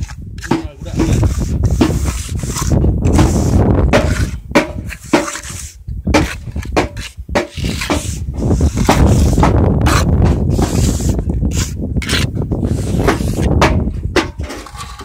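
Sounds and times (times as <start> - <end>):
trowel scraping and tapping mortar: 0.0 - 15.0
wind rumble on microphone: 0.0 - 15.0.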